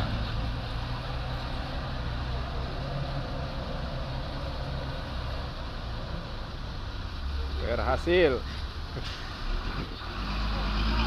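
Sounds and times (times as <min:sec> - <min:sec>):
dump truck engine under load: 0:00.0 - 0:07.6, 0:08.4 - 0:11.0.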